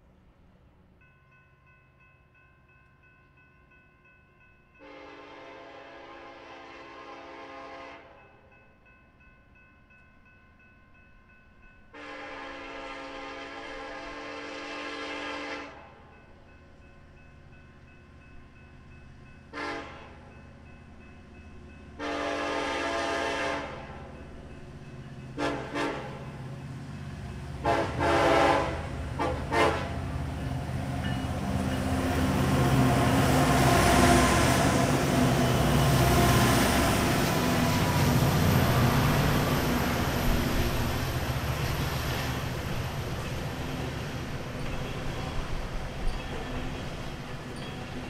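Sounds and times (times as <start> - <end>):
train air horn blasts: 4.8 - 8.2, 11.9 - 15.9, 19.5 - 20.2, 22.0 - 23.9, 25.4 - 26.3, 27.6 - 30.1
diesel locomotive engines rumbling: 11.9 - 48.0
train wheels rumbling: 19.1 - 48.0.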